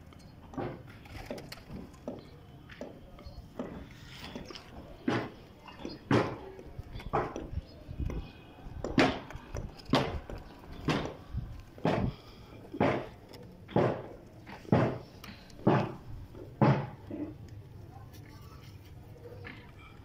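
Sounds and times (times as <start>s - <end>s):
footsteps on hard ground: 1.7s - 17.4s.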